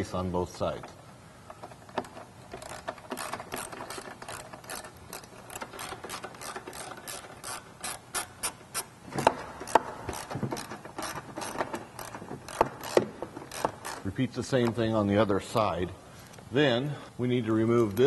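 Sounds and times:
ratchet clicking: 1.5s - 14.1s.

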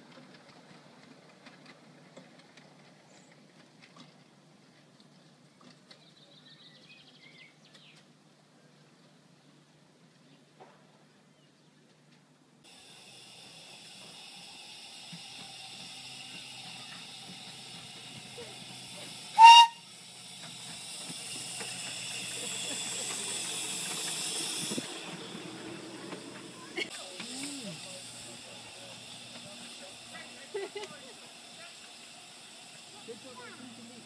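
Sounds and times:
steam locomotive hissing: 12.6s - 34.0s
steam whistle toot: 19.3s - 20.0s.

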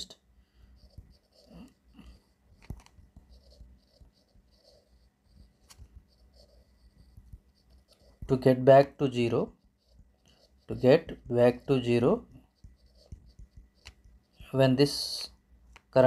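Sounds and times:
stylus scratching on screen: 0.0s - 16.0s.

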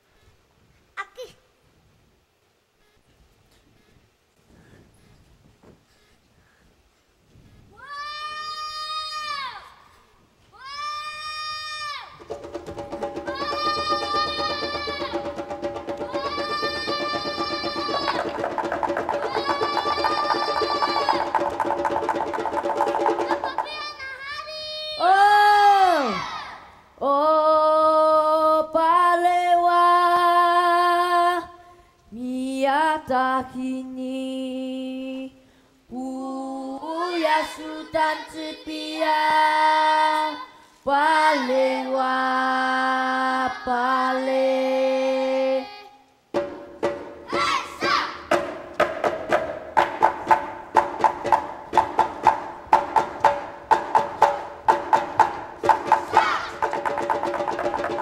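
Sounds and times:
quick steady beat: 12.2s - 23.8s, 46.4s - 58.0s
child singing: 13.2s - 18.4s, 19.1s - 21.4s, 23.0s - 46.1s, 47.3s - 48.3s, 55.7s - 56.8s
group of voices chanting: 47.3s - 48.3s, 55.7s - 56.8s.

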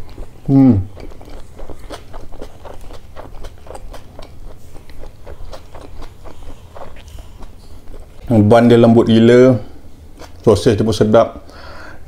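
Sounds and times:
close-up chewing: 0.0s - 9.1s, 10.1s - 10.5s.

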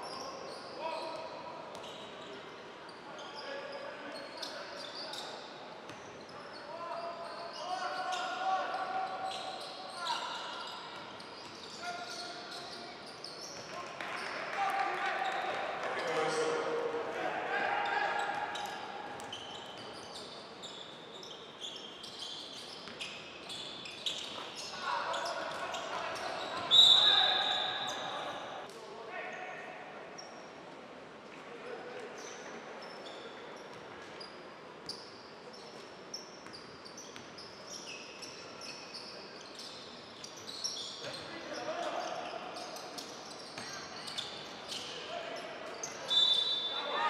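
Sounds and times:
shoes squeaking on court: 0.0s - 14.4s, 18.1s - 28.6s, 32.2s - 46.9s
large hall ambience: 0.0s - 47.0s
sneakers squeaking on hardwood: 1.7s - 2.3s, 18.2s - 28.2s, 42.1s - 45.0s.

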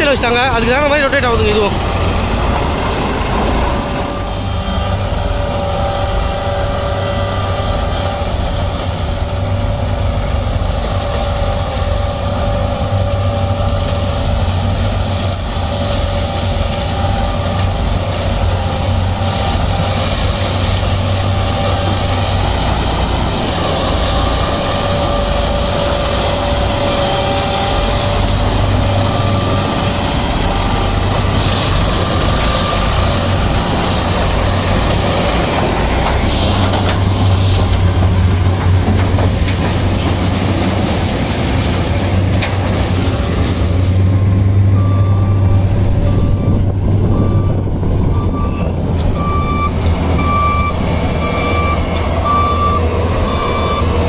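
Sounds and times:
high machine whines: 0.0s - 40.6s
harvester and tractor engines humming: 0.0s - 54.0s.

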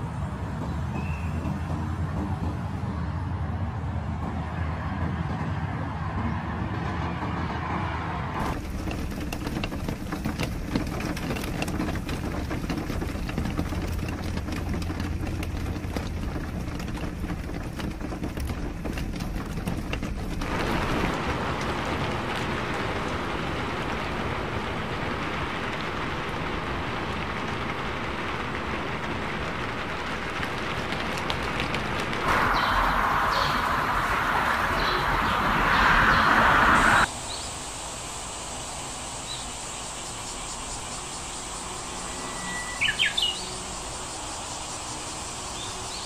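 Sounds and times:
tyres on wet road: 0.0s - 39.6s
raindrops splashing on ground: 8.4s - 36.3s.

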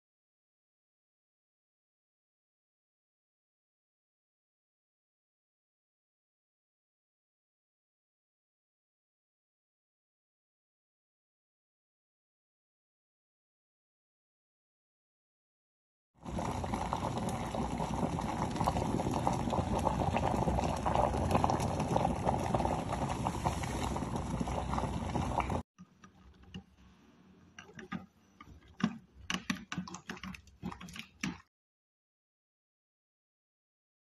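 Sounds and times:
water boiling in electric kettle: 16.2s - 25.6s, 27.6s - 31.5s
scattered clicks and knocks: 27.6s - 31.5s.

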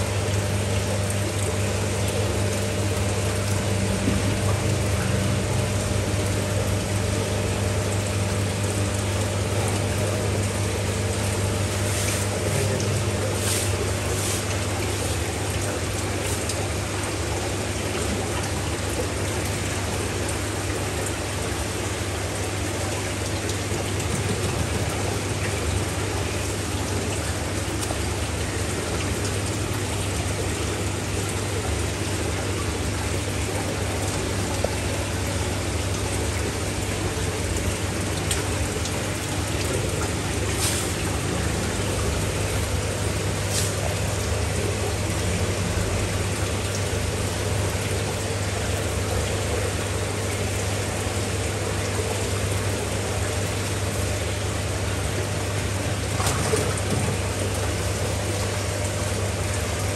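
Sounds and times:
water splashing: 0.0s - 59.9s.

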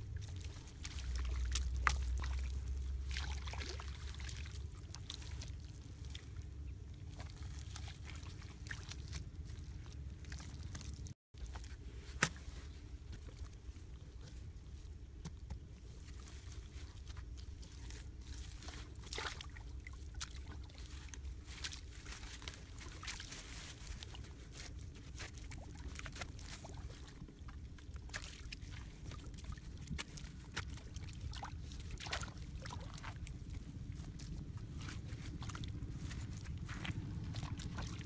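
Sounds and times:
hands squelching through wet mud: 0.0s - 38.0s
low rumble: 28.9s - 38.0s.

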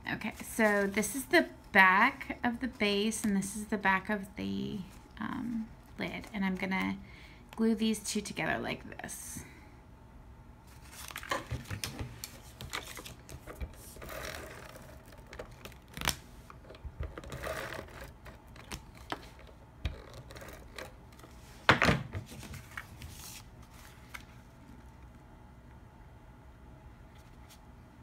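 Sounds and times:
paper rustling: 10.7s - 16.2s, 22.2s - 24.5s.

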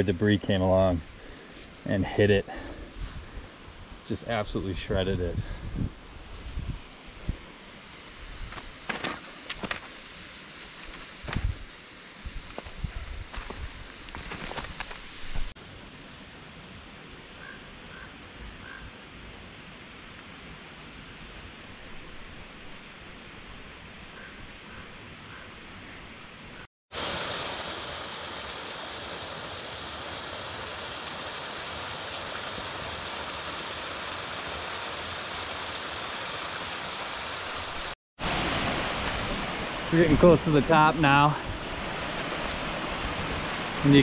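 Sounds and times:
stream rushing over boulders: 6.1s - 15.6s, 26.9s - 44.0s.

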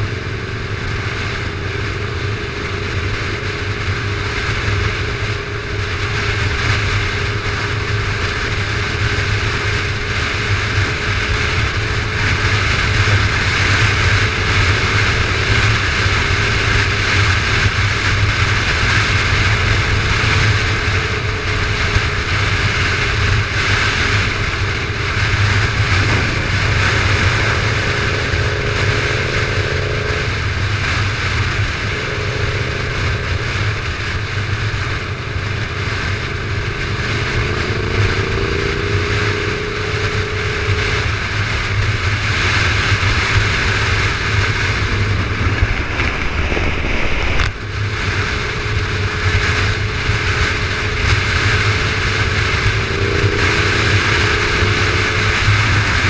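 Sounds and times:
motorcycle engine cruising: 0.0s - 56.0s
wind and road rush: 0.0s - 56.0s.

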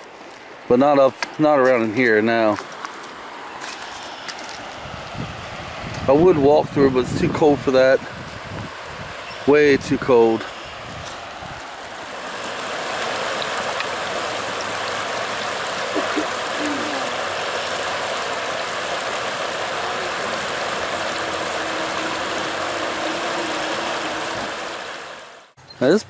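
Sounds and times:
water rushing over rocks: 11.0s - 25.6s.

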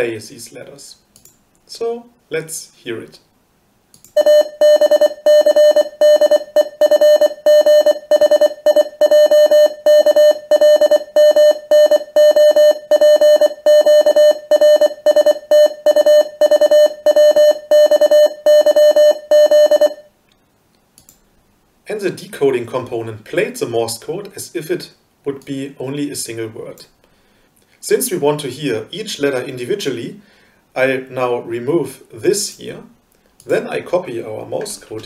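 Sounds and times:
morse code beeps: 4.2s - 20.1s.

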